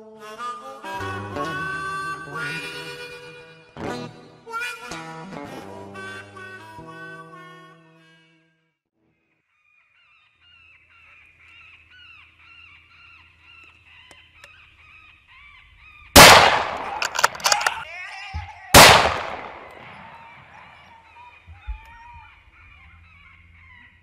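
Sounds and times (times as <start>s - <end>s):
loud gunshots: 16.2s - 17.8s, 18.8s - 20.4s
sharp clicks: 16.2s - 17.8s, 18.8s - 20.0s
honking bird calls: 18.8s - 24.0s.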